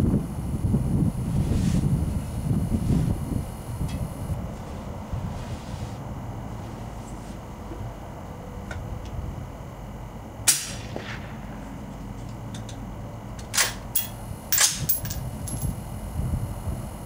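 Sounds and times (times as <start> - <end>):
suppressed gunshot crack: 10.5 - 11.4.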